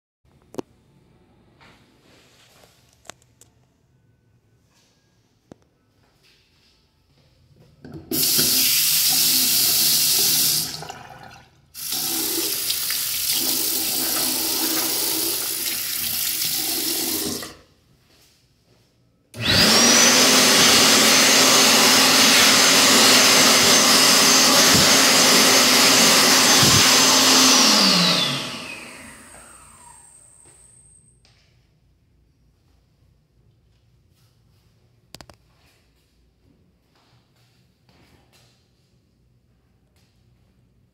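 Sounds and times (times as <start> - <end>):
hand dryer blowing with whine: 8.1 - 10.8, 11.8 - 17.5, 19.4 - 30.8
faucet running water into sink: 8.1 - 17.6.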